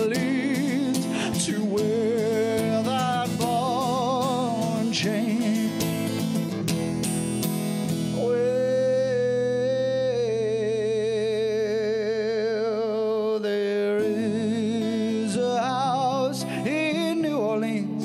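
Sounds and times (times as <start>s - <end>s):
man singing with vibrato: 0.0s - 6.6s, 8.0s - 18.0s
acoustic guitar: 0.0s - 18.0s.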